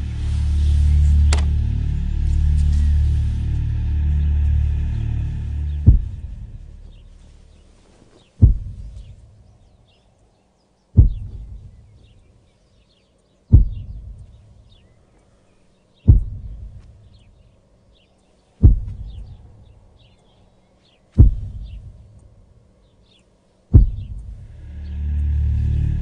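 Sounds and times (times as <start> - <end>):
deep booming low hits: 0.0 - 7.2, 8.4 - 9.4, 11.0 - 11.8, 13.5 - 14.3, 16.1 - 16.8, 18.6 - 19.4, 21.2 - 22.0, 23.7 - 26.0
faint birdsong: 0.0 - 26.0.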